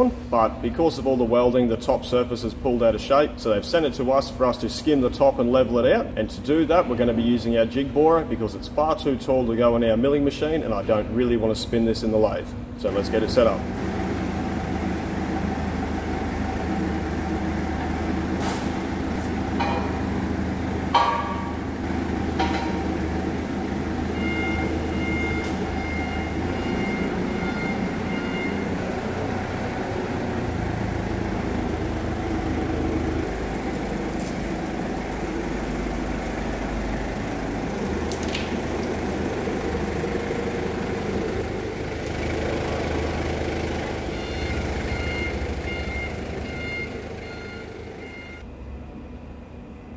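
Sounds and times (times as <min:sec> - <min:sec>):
forklift engine running: 0:12.5 - 0:49.9
sharp metal clanks: 0:19.6 - 0:20.2, 0:20.9 - 0:21.7, 0:22.3 - 0:23.1
reversing beeper: 0:22.4 - 0:29.7, 0:44.1 - 0:48.5.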